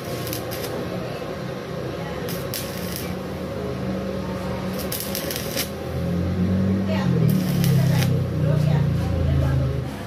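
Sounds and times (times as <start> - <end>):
welding arc crackling hiss: 0.0 - 1.1, 2.2 - 3.5, 4.5 - 6.1, 7.1 - 8.7.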